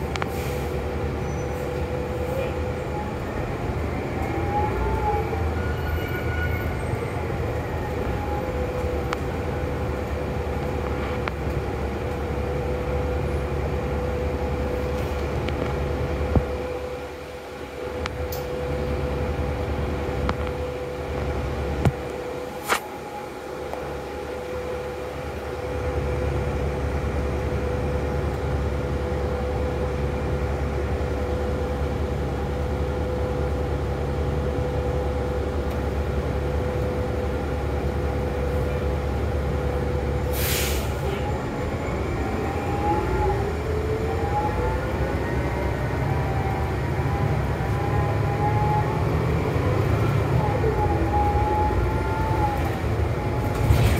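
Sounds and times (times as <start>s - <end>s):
bus engine idling with whine: 0.0s - 53.9s
bus pulling away: 0.0s - 53.9s
air brakes hiss: 0.3s - 0.8s, 40.3s - 41.2s.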